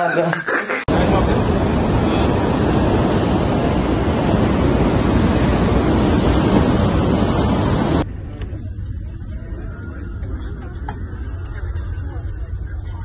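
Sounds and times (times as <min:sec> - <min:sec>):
wake water rushing beside hull: 0:00.9 - 0:08.0
wind buffeting microphone: 0:00.9 - 0:11.9
low hum: 0:00.9 - 0:13.0.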